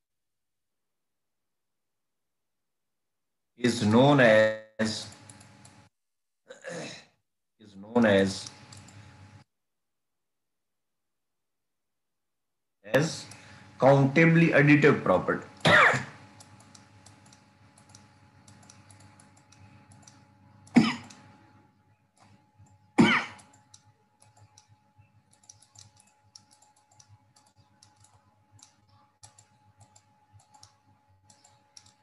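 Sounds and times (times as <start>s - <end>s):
man coughing: 6.5s - 7.2s, 15.6s - 16.2s, 20.7s - 21.2s, 23.0s - 23.5s
stylus clicking on tablet: 16.2s - 21.3s, 23.4s - 32.0s.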